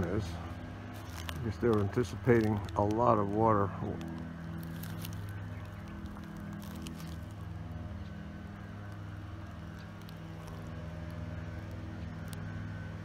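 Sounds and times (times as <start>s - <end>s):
low engine drone: 0.0s - 13.0s.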